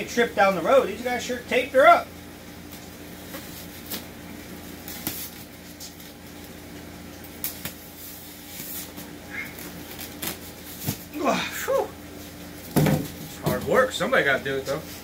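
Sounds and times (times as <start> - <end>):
low background hum: 0.0 - 15.0
packing tape ripping off styrofoam: 3.4 - 4.1, 4.8 - 6.6, 7.3 - 11.1.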